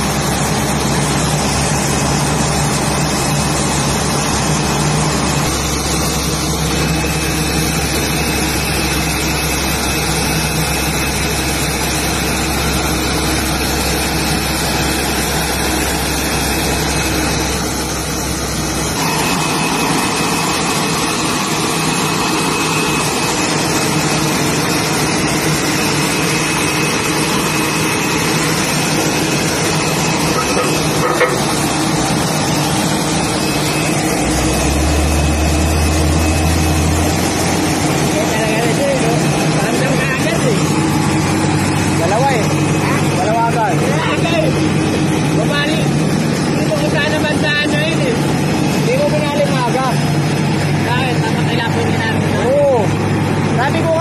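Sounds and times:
diesel engine running: 0.0s - 54.0s
high whine and hiss: 0.0s - 54.0s.

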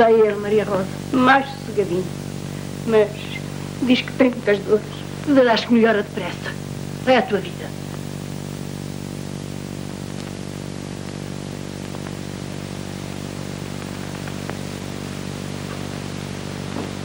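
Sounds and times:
film soundtrack hiss and hum: 0.0s - 17.0s
faint clicks: 11.8s - 12.2s.

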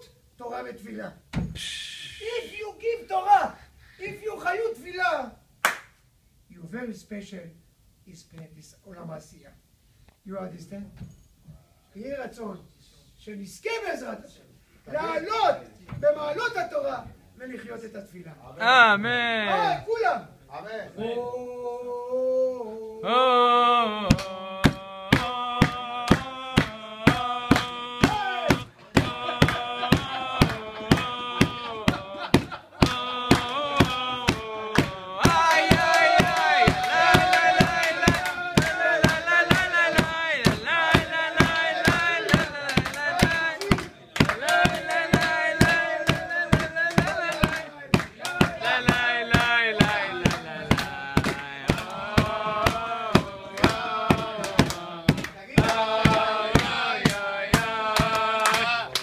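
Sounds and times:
steady handclaps: 5.6s - 6.0s, 24.1s - 59.0s
men singing together: 22.9s - 59.0s.

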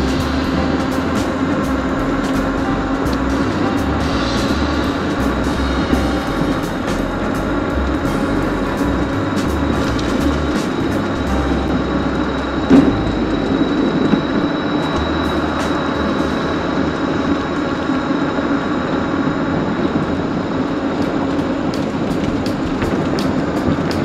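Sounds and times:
high motor whine: 0.0s - 24.0s.

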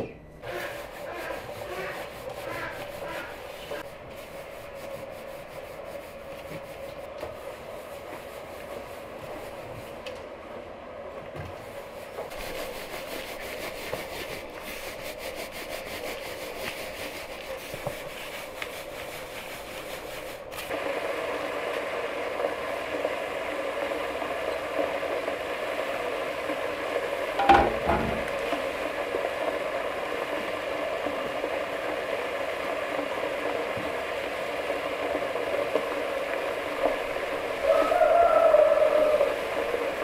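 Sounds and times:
flour sifted through metal sieve: 0.4s - 10.0s, 11.8s - 20.9s.

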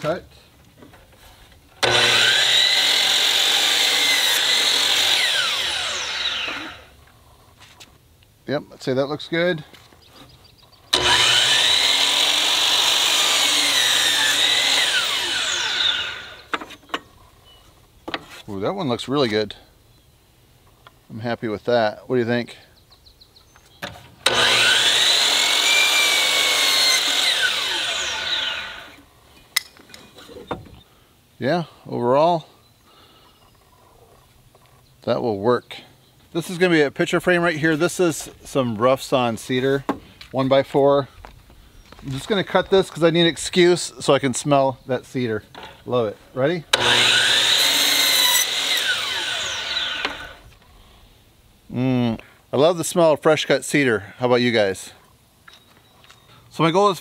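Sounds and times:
saw blade spinning down: 1.8s - 6.9s, 11.0s - 16.5s, 24.3s - 29.0s, 46.7s - 50.4s
miter saw whining: 1.8s - 7.0s, 10.9s - 16.6s, 24.2s - 29.0s, 46.7s - 50.6s.

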